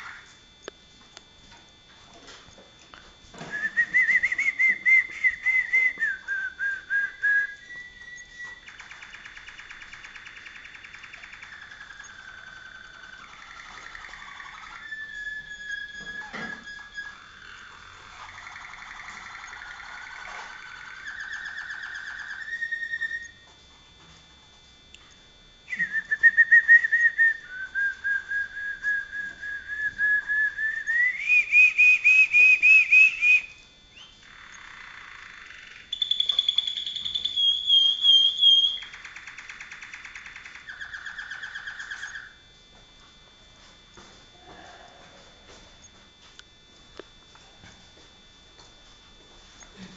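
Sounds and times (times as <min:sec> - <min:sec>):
canary singing trills: 0:03.6 - 0:23.4, 0:30.6 - 0:42.4.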